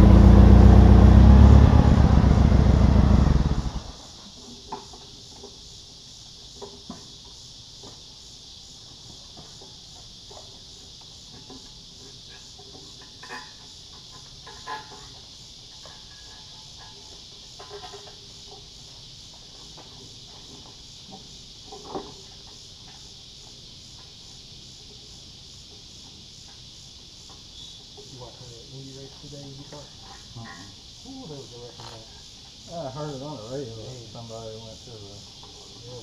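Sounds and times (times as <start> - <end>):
forklift engine running: 0.0 - 4.0
insect chirping: 0.0 - 36.0.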